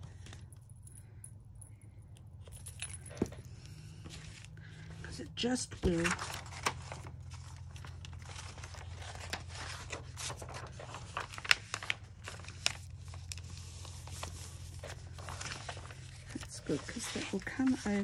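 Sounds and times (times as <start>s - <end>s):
low steady hum: 0.0s - 18.0s
paper rustling and crinkling: 3.8s - 18.0s.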